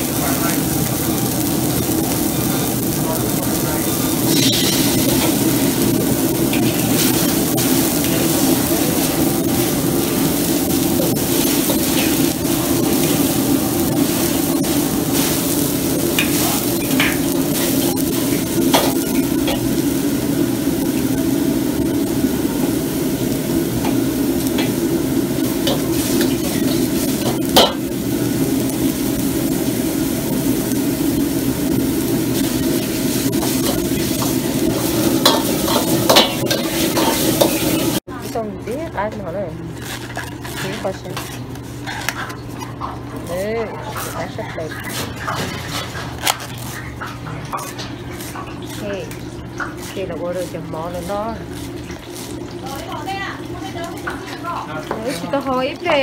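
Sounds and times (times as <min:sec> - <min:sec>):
food sizzling in a wok: 0:00.0 - 0:56.0
gas burner rushing: 0:00.0 - 0:56.0
ladle scraping and clinking wok: 0:03.9 - 0:19.9, 0:23.8 - 0:27.9, 0:32.3 - 0:38.0, 0:39.7 - 0:55.8
loud metal clank: 0:04.3 - 0:05.3.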